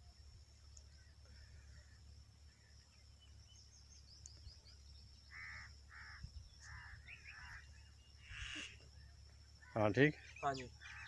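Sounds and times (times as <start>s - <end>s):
bird harsh calls: 5.3s - 11.0s.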